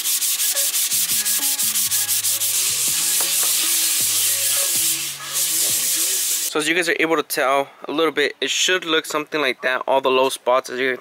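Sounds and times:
sandpaper sanding strokes: 0.0s - 6.5s.

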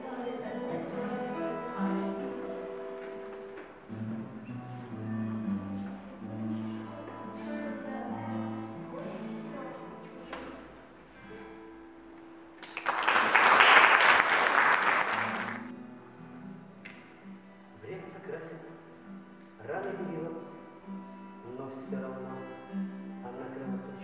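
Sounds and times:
acoustic guitar chords: 0.0s - 12.7s, 14.8s - 24.0s
audience applauding: 12.6s - 15.7s.

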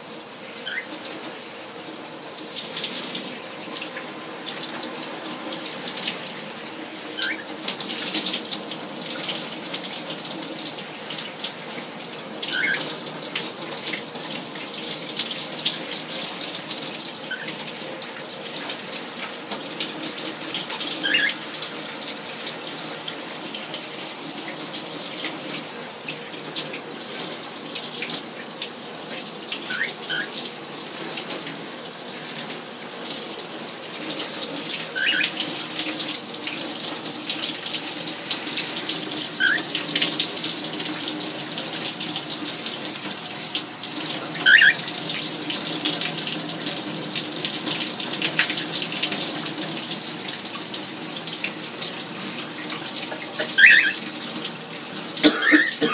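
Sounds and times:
shower water running: 0.0s - 55.9s
cockatiel chirping: 0.6s - 1.0s, 7.2s - 7.5s, 12.5s - 12.9s, 17.3s - 17.5s, 21.0s - 21.4s, 29.7s - 30.4s, 35.0s - 35.4s, 39.4s - 39.7s, 44.4s - 44.9s, 53.4s - 54.0s.

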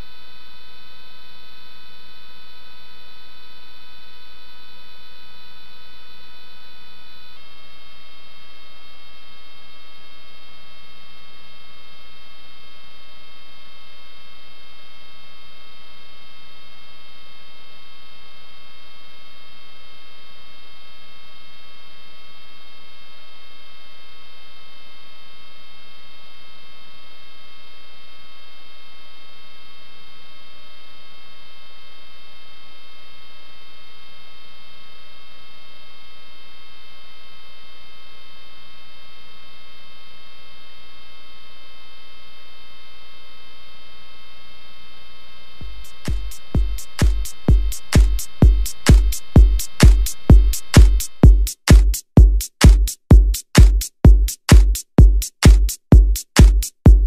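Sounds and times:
electrical hum: 39.7s - 52.8s.

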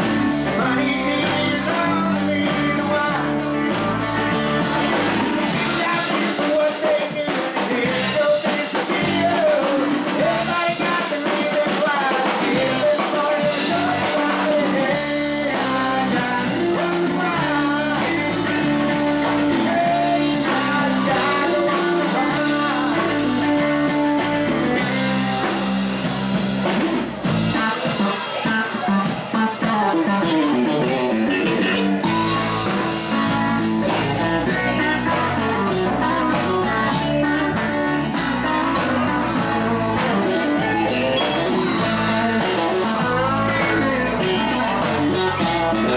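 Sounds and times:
man singing: 0.0s - 26.1s, 27.4s - 45.9s
bass guitar: 0.0s - 45.9s
drum kit: 0.0s - 45.9s
electric guitars: 0.0s - 45.9s.

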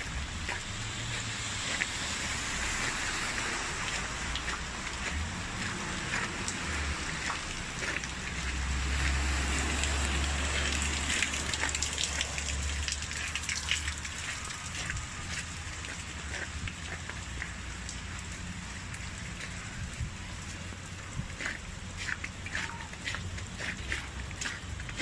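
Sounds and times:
rain falling on pavement: 0.0s - 25.0s.

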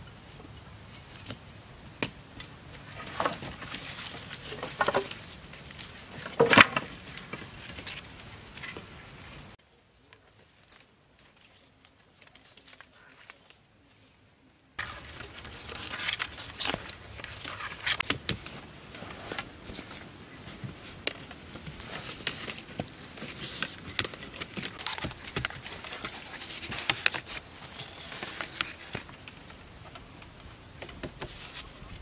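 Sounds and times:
sticks and leaves crackling: 0.1s - 32.0s.

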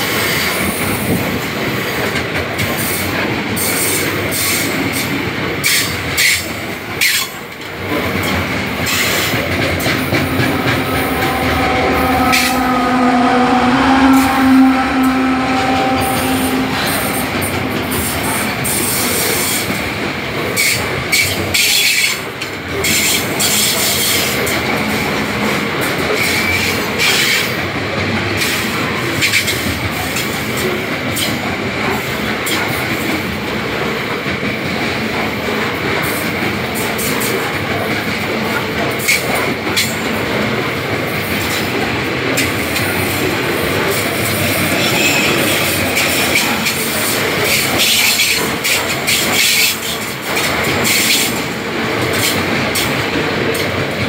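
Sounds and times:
train wheels rumbling on rail: 0.0s - 54.0s
locomotive engine hum: 7.6s - 20.5s
wheels clacking over rail joints: 29.2s - 54.0s.

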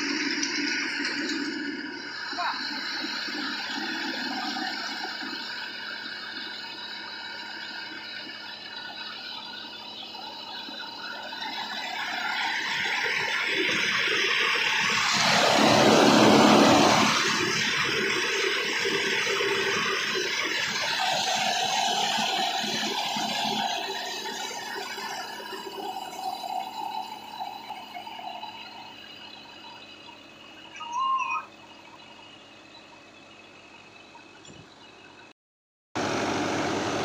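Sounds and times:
rice mill humming and whining: 0.0s - 35.2s, 36.0s - 37.0s
loud rushing noise: 14.8s - 18.0s.

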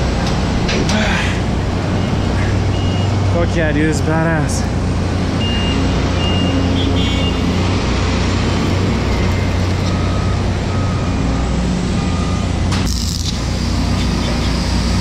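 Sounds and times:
construction machinery rumbling: 0.0s - 15.0s
short beeping tones: 1.9s - 3.2s, 5.4s - 7.5s.

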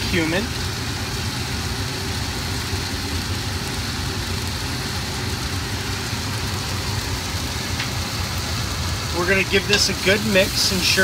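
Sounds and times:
constant low hum: 0.0s - 11.0s
onions and garlic sizzling: 0.0s - 11.0s.

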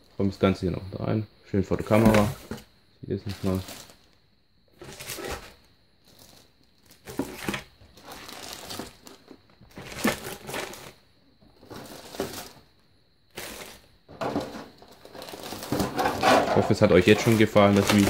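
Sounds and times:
plastic bags crinkling: 3.2s - 4.1s, 4.8s - 11.0s, 11.6s - 12.6s, 13.3s - 18.0s.

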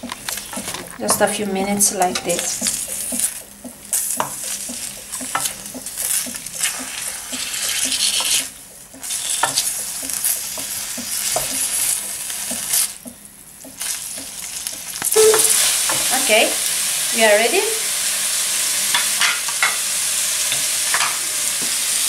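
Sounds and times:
wooden spoon knocking and scraping pan: 0.0s - 16.3s, 20.5s - 21.8s
beans sizzling in a pan: 0.0s - 22.0s.

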